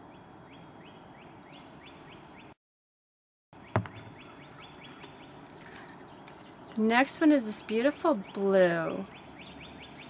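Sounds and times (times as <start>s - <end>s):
outdoor ambience: 0.0s - 2.6s, 3.6s - 10.0s
small bird chirping: 3.6s - 6.9s, 7.6s - 10.0s
sharp knock: 3.8s - 4.1s.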